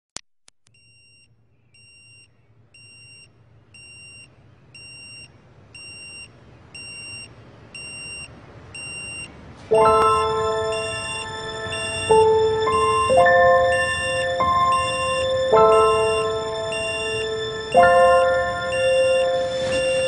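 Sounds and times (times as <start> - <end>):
alarm clock beeping: 1.8 - 20.0
music: 9.7 - 20.0.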